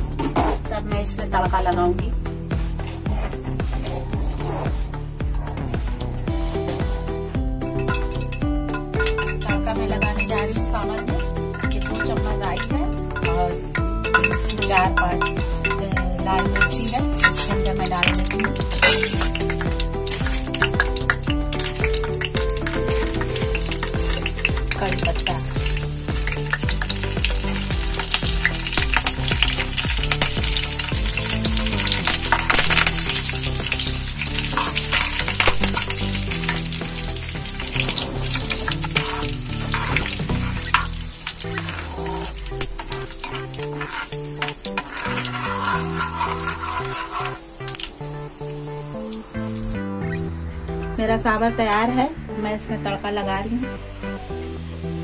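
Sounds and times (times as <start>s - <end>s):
background music: 0.0s - 55.0s
spices sizzling in hot oil: 7.6s - 49.8s.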